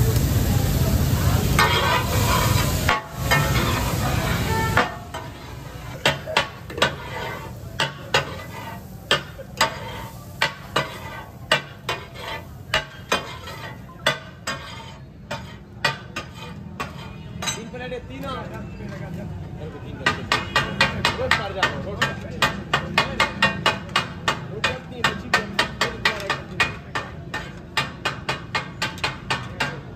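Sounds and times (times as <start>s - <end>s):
food sizzling: 0.0s - 17.4s
metal spatula clanking on griddle: 1.4s - 17.8s, 20.0s - 29.9s.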